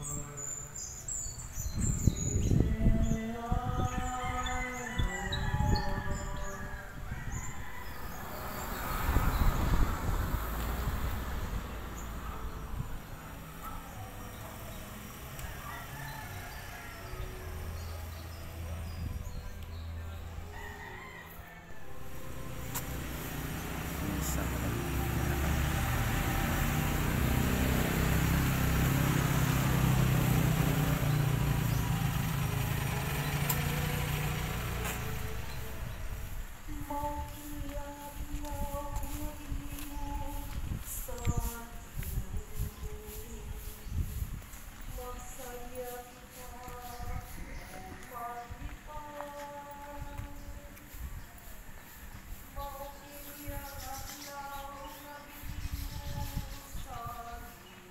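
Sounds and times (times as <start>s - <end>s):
wind rumble on microphone: 0.0s - 13.8s, 34.4s - 57.9s
vehicle engine running at low revs: 22.1s - 37.8s.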